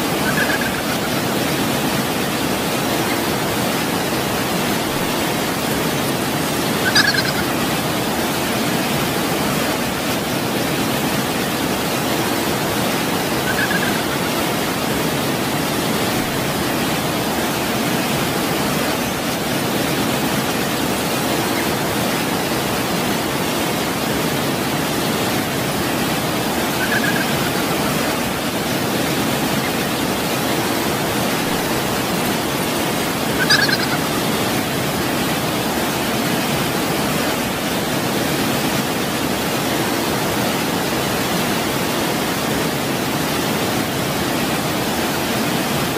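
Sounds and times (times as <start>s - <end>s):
waterfall rushing: 0.0s - 45.9s
high chirps: 0.2s - 1.1s, 6.8s - 7.5s, 26.6s - 27.8s, 33.4s - 34.0s.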